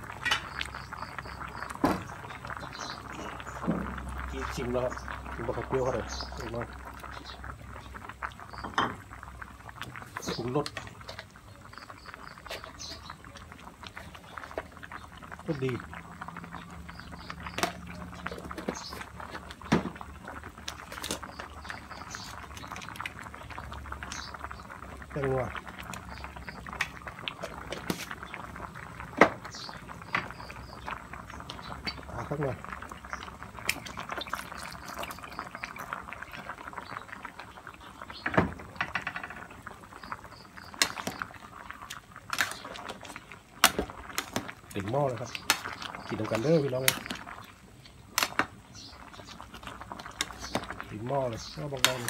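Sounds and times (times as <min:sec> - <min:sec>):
curry boiling with bubbles popping: 0:00.0 - 0:52.0
ladle scraping metal pot: 0:27.4 - 0:28.2, 0:42.3 - 0:44.5.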